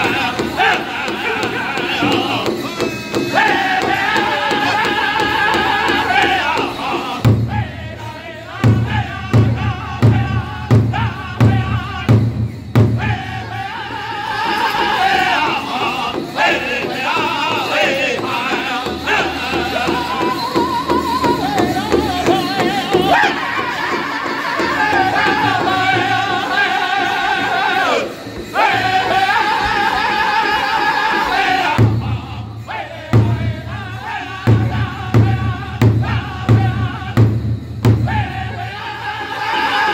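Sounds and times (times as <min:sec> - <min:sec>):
large drum beating: 0:00.0 - 0:13.8, 0:31.7 - 0:38.8
group singing high-pitched unison: 0:00.0 - 0:39.9.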